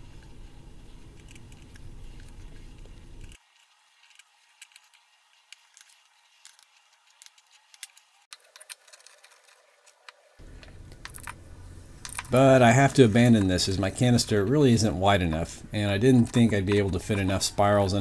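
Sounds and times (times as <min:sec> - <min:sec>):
low steady rumble: 0:10.4 - 0:18.0.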